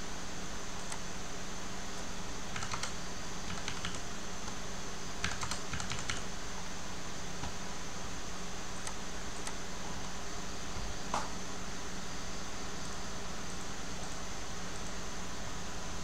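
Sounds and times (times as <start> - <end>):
steady background hum: 0.0 - 16.0
computer keyboard typing: 2.5 - 4.6, 5.2 - 6.3, 8.8 - 9.6.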